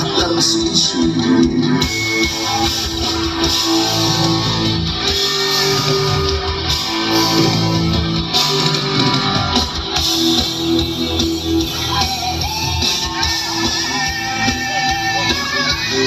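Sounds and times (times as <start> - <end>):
live band music through pa: 0.0 - 16.0.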